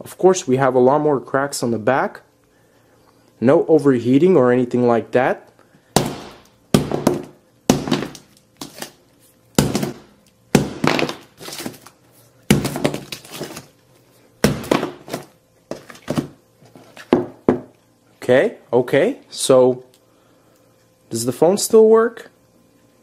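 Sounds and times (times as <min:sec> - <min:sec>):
hammer smashing phone glass: 0:06.0 - 0:08.9, 0:09.6 - 0:11.8, 0:12.5 - 0:13.6, 0:14.4 - 0:15.2.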